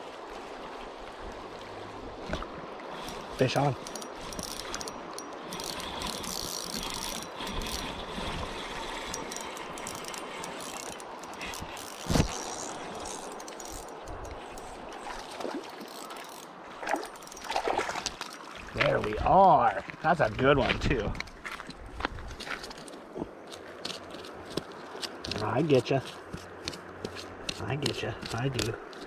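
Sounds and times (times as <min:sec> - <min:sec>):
fishing reel whirring and clicking: 0:02.9 - 0:14.9, 0:15.6 - 0:16.5, 0:17.1 - 0:17.5.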